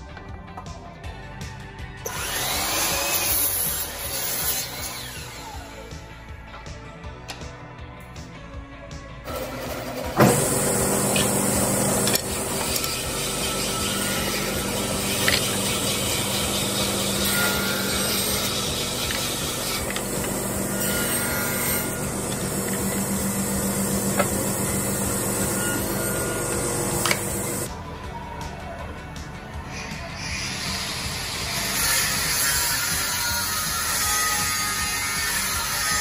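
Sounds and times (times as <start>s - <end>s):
table saw humming: 2.1s - 5.8s, 9.3s - 27.7s.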